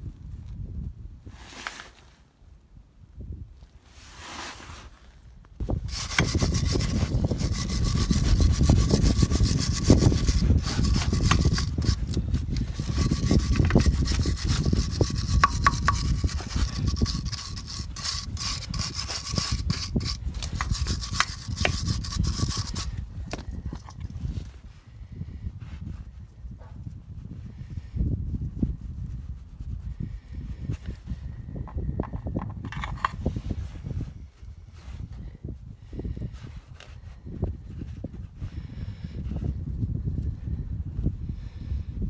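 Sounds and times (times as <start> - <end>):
wire brush scrubbing metal: 5.7 - 23.0.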